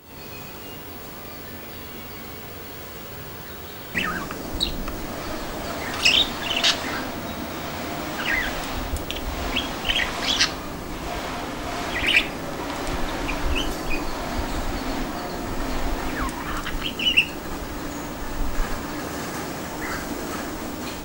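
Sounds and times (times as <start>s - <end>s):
budgerigar chirping and chattering: 4.0s - 7.2s, 8.1s - 10.6s, 11.8s - 12.3s, 13.0s - 17.4s.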